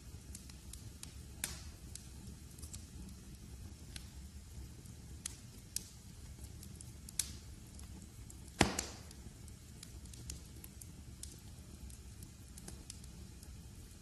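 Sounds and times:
wood fire crackling: 0.0s - 14.0s
loud sharp pop: 8.6s - 9.1s.

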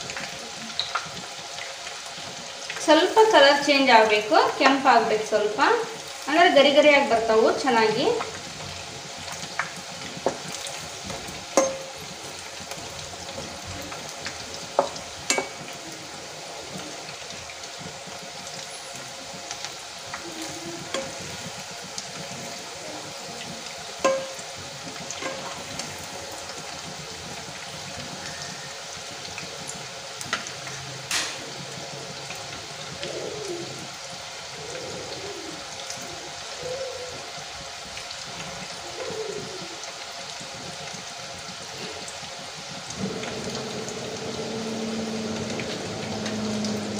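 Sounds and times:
hot oil sizzling: 0.0s - 46.9s
metal skimmer clinking on pan: 11.6s - 12.0s, 24.0s - 24.4s.

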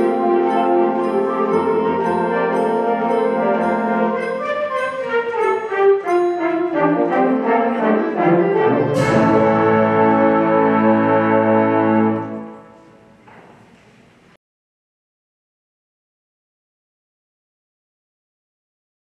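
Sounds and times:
concert band playing chords: 0.0s - 4.6s, 8.2s - 12.3s
cymbal crash: 9.0s - 10.5s.

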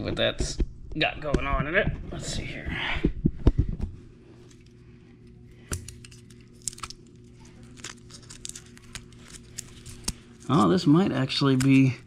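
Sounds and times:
low steady hum: 0.0s - 12.0s
tape and wire crackling: 3.4s - 12.0s.

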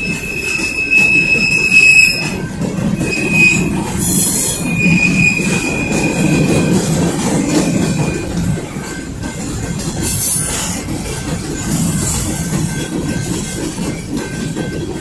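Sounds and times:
high wheel squeal: 0.0s - 8.4s
freight train rumbling past: 0.0s - 15.0s.

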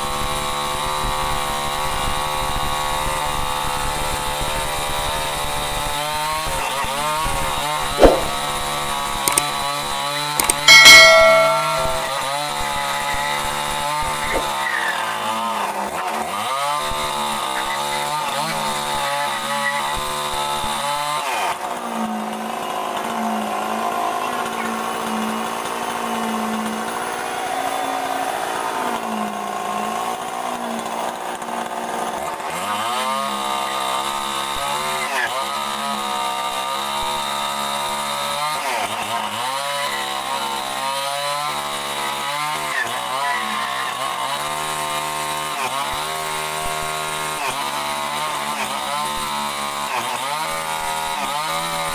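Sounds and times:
chainsaw cutting wood: 0.0s - 11.2s, 13.6s - 28.4s, 29.0s - 51.9s
loud metallic clang: 8.0s - 8.4s, 10.6s - 12.4s
sharp knock: 8.0s - 8.4s, 10.7s - 12.3s.

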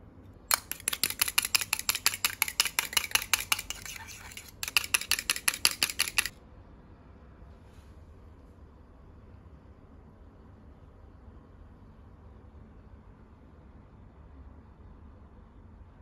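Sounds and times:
spoon clinking in metal cup: 0.5s - 6.3s.

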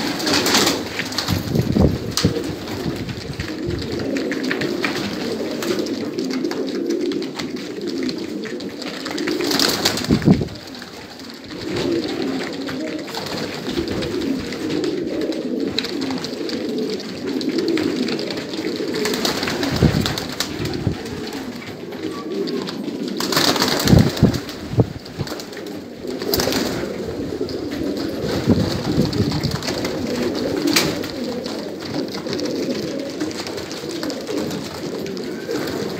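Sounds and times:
pigeons cooing: 0.0s - 35.9s
rustling bursts: 0.0s - 35.9s.

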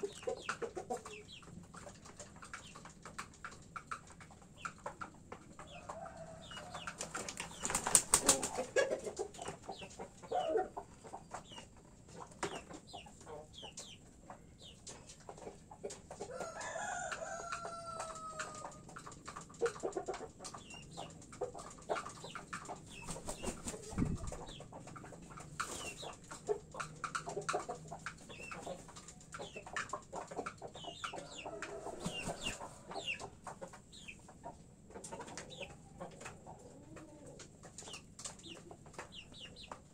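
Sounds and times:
roosters clucking: 0.0s - 39.9s
rooster crowing: 16.4s - 18.6s.

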